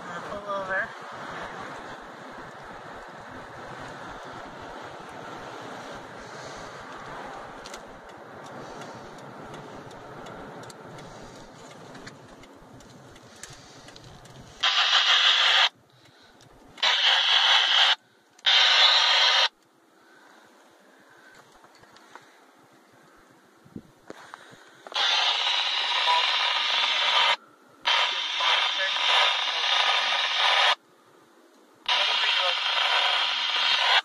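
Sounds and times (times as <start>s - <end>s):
car engine and road noise: 0.0s - 34.0s
loud hiss bursts: 14.6s - 15.7s, 16.8s - 19.5s, 24.9s - 30.8s, 31.9s - 34.0s.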